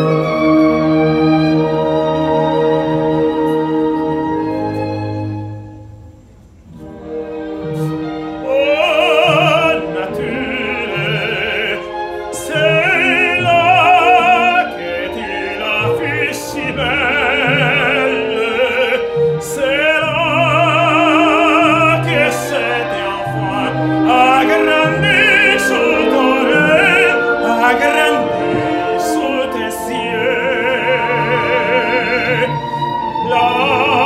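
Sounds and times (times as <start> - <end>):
orchestral accompaniment: 0.0 - 34.0
operatic tenor singing: 6.9 - 34.0.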